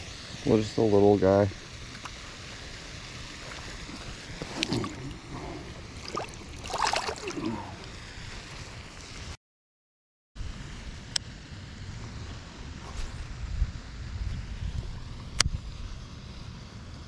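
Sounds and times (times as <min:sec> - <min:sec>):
water splashing and sloshing: 0:01.9 - 0:09.3
wind on microphone: 0:13.1 - 0:16.0.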